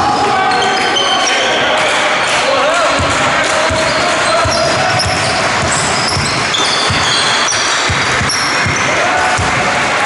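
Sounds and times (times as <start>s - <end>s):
basketball dribbling on wooden floor: 2.9s - 9.7s
shoes squeaking on floor: 3.6s - 9.0s.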